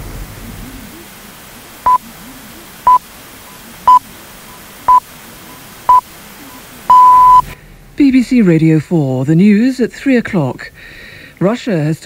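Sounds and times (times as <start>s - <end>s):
faint hiss: 0.0s - 8.3s
short time signal beeps: 6.9s - 7.4s.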